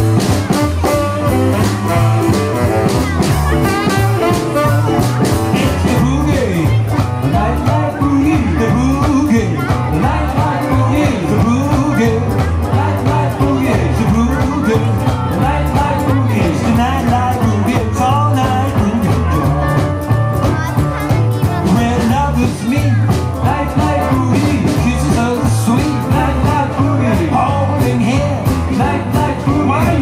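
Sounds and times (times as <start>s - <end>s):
blues band playing: 0.0s - 30.0s
person singing into microphone: 4.6s - 19.9s, 21.4s - 30.0s.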